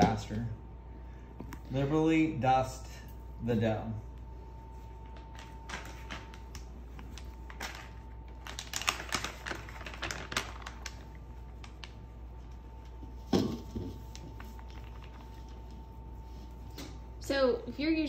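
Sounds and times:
flour package crinkling: 4.9s - 13.1s, 14.0s - 15.8s.

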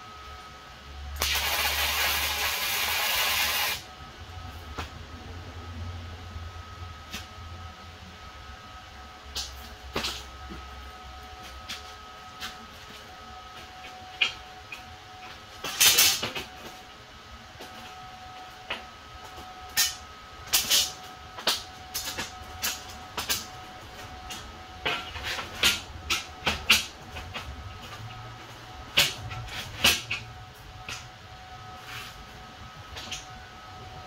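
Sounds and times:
arc welder crackling bursts: 1.1s - 3.9s, 15.6s - 16.4s, 19.7s - 25.0s.

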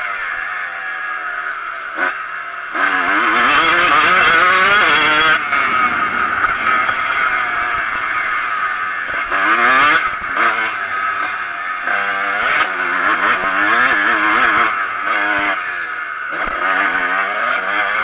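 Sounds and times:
motocross bike engine revving: 0.0s - 18.0s
rushing wind: 3.5s - 11.7s.

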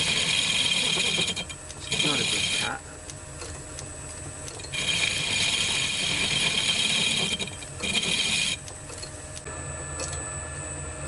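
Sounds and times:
lathe tool cutting metal: 0.0s - 2.8s, 4.7s - 8.6s
metal lathe drive running: 0.0s - 10.2s.

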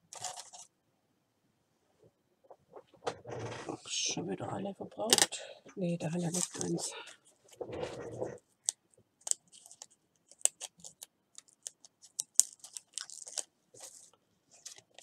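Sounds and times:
paper rustling: 6.1s - 8.4s, 9.5s - 15.0s.

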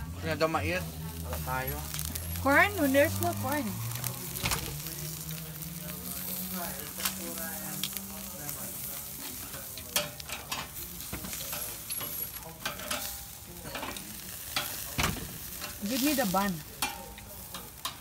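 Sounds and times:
food sizzling on grill: 0.0s - 18.0s
crackles and pops: 1.0s - 13.3s.

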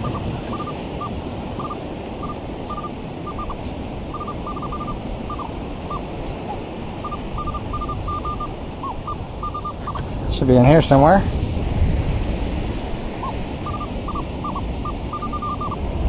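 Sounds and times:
metal detector beeps: 0.0s - 10.0s, 13.2s - 15.9s
surf and wind hiss: 0.0s - 16.0s.

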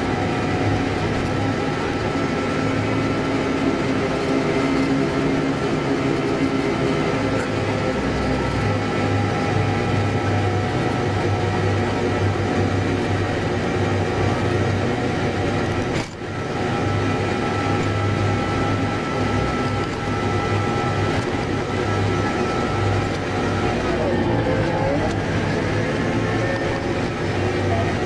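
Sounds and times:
diesel engine running: 0.0s - 28.0s
steady whine: 0.0s - 28.0s.

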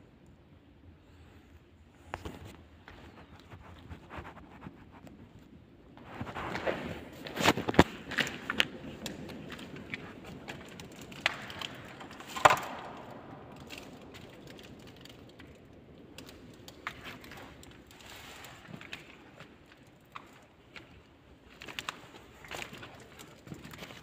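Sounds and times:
dry sticks crackling and snapping: 7.2s - 24.0s.

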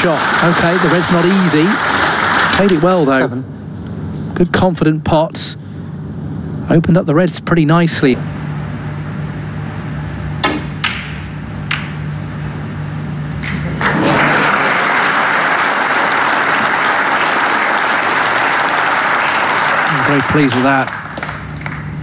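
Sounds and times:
audience applause: 0.0s - 2.8s, 13.4s - 22.0s
low hum: 0.1s - 15.0s
snooker balls clicking: 10.4s - 12.0s.

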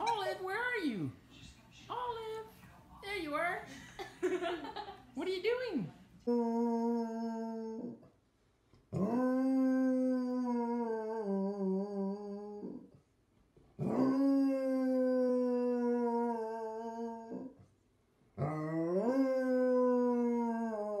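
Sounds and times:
dog howling: 6.2s - 8.0s, 9.0s - 12.8s, 13.8s - 17.5s, 18.4s - 21.0s.

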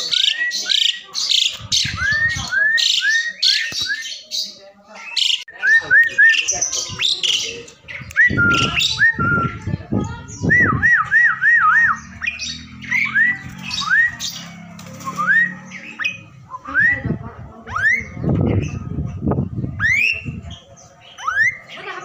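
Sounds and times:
harsh chattering squawks: 0.0s - 5.6s, 6.2s - 16.6s, 19.8s - 22.0s.

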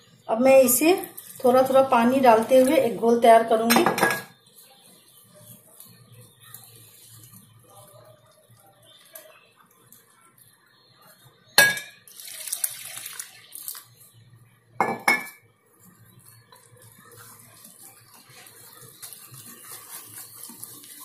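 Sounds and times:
water pouring: 1.0s - 3.0s, 12.0s - 14.2s
glass and metal clinking: 3.7s - 4.3s, 11.6s - 12.0s, 14.8s - 15.4s
whisk beating batter in glass bowl: 15.8s - 21.0s.

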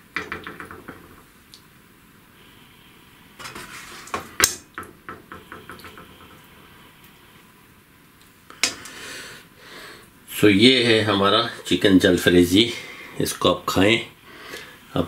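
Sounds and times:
spoon scraping pan and plate: 3.4s - 4.4s.

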